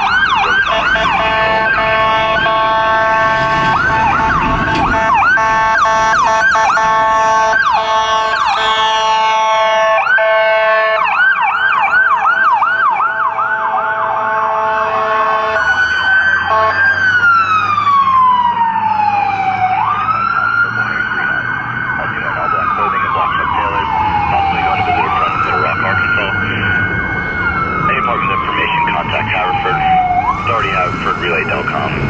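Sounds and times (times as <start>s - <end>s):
fire engine sirens: 0.0s - 32.0s
blaring horn: 0.5s - 11.2s, 13.1s - 17.0s.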